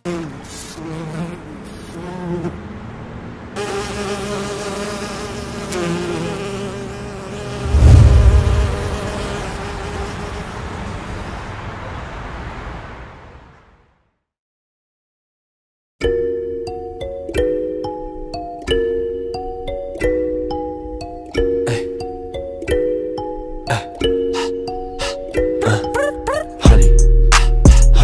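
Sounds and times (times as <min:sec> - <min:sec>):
deep low boom: 0:07.6 - 0:09.2.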